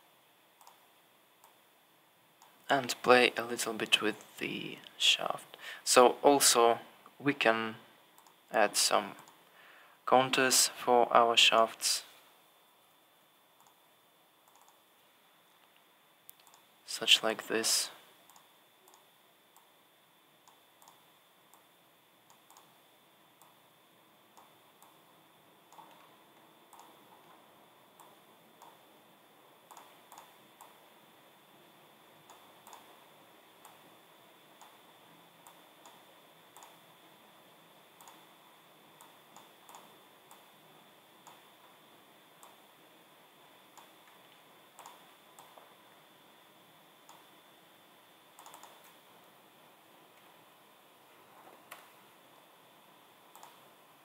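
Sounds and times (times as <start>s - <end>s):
faint high-pitched whine: 0.0s - 54.0s
low hiss: 0.0s - 54.0s
computer mouse clicks: 0.6s - 0.8s, 1.4s - 1.6s, 8.2s - 8.4s, 13.6s - 13.8s, 14.4s - 14.8s, 15.6s - 16.7s, 18.2s - 19.7s, 20.4s - 21.7s, 22.3s - 22.8s, 24.3s - 25.0s, 25.7s - 26.1s, 26.7s - 27.3s, 28.0s - 28.8s, 29.7s - 30.8s, 32.2s - 33.0s, 33.6s - 33.8s, 34.6s - 34.8s, 35.4s - 36.8s, 38.0s - 38.3s, 39.0s - 40.5s, 41.2s - 41.5s, 42.4s - 42.6s, 43.7s - 45.6s, 47.0s - 47.3s, 48.3s - 49.0s, 53.3s - 53.6s.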